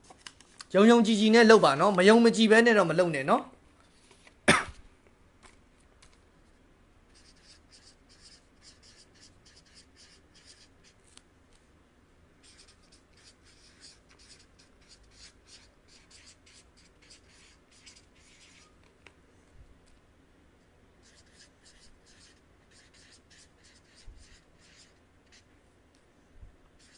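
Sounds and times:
marker writing on paper: 7.1 - 11.0, 12.4 - 18.8, 21.0 - 25.5.

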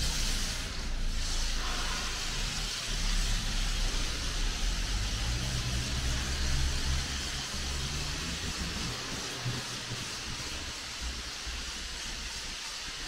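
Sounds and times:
pressure washer spray hiss: 0.0 - 13.0
low motor hum: 2.9 - 11.2.

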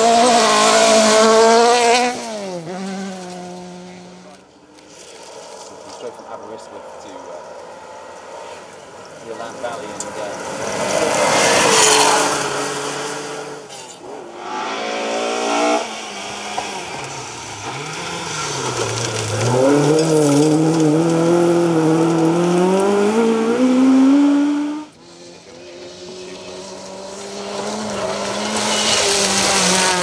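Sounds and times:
rally car engines revving: 0.0 - 30.0
tyres scrabbling on gravel: 17.7 - 21.3.

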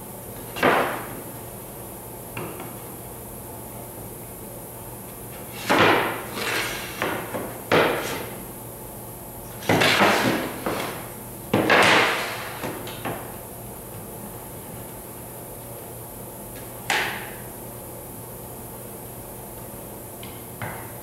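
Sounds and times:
biscuit joiner cutting wood: 5.5 - 7.2.

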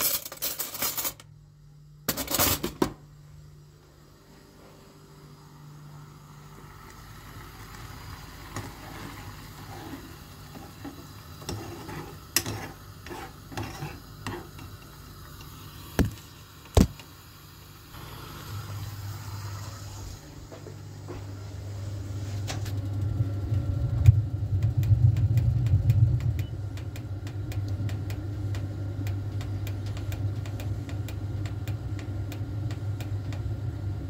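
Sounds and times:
steady low hum: 0.0 - 34.0
metal spoon scraping saucepan: 9.6 - 14.7.

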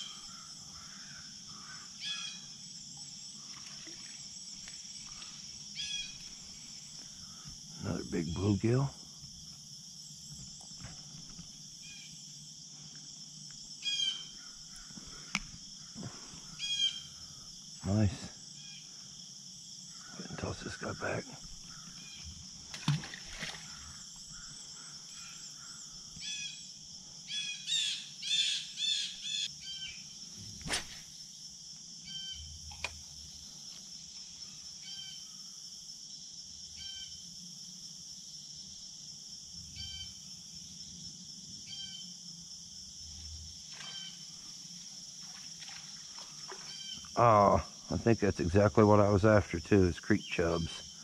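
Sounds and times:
birds calling: 0.0 - 2.6, 5.0 - 8.8, 13.8 - 17.3, 43.8 - 44.4, 46.0 - 48.2
insects droning: 0.0 - 51.0.

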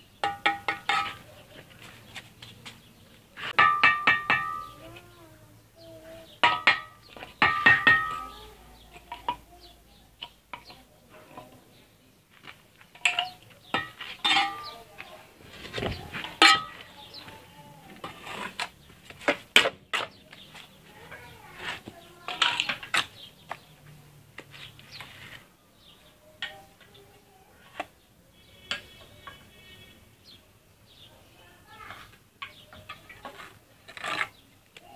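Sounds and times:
metal knocking on brick: 0.2 - 1.2, 3.6 - 4.8, 6.4 - 8.4
trowel scraping mortar on bricks: 15.5 - 23.2, 32.8 - 34.6.

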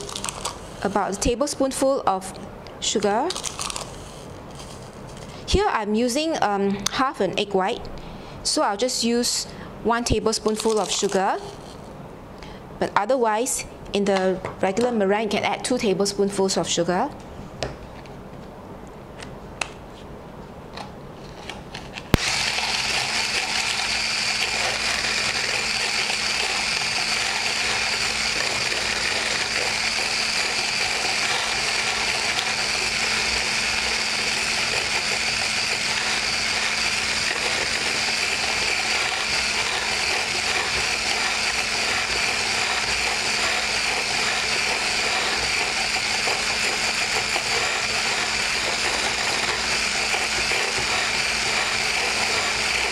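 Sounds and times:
electric whisk motor hum: 0.0 - 0.6, 22.2 - 52.9.

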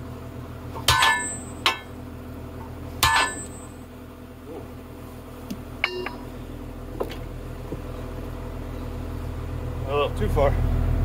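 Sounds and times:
engine idling: 0.0 - 11.0
steel chain clanking on metal: 0.8 - 1.9, 3.0 - 3.8.

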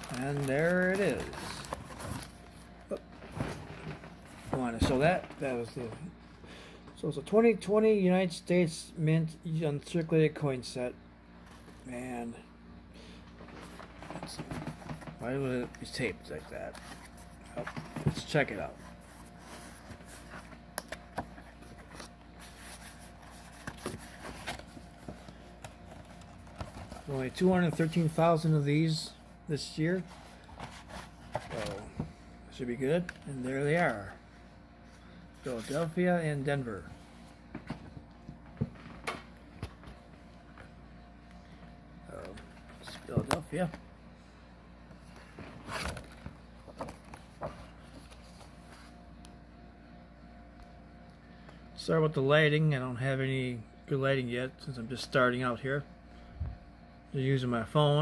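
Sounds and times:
cardboard packaging rustling: 0.0 - 5.6, 13.6 - 28.6.

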